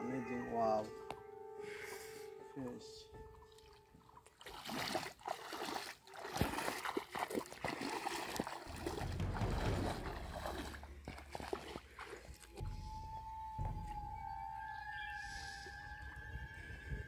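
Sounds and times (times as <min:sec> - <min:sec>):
water splashing from wading: 0:03.4 - 0:13.0
low rumble: 0:08.7 - 0:17.0.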